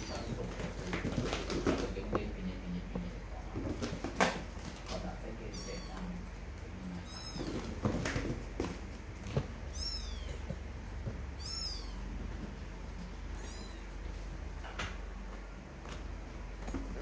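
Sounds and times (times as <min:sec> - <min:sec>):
kittens mewing: 0:00.0 - 0:02.2, 0:03.8 - 0:08.6, 0:09.3 - 0:12.4, 0:13.2 - 0:14.1
low steady hum: 0:00.0 - 0:17.0.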